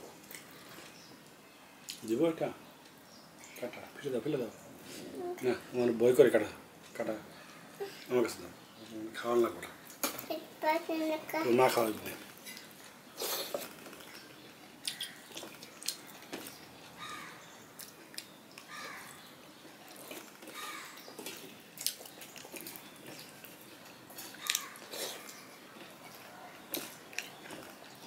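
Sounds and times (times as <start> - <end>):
chewing and mouth smacks: 0.2 - 1.0, 12.4 - 17.0, 17.8 - 28.0
distant calls: 14.1 - 19.8, 20.4 - 21.5.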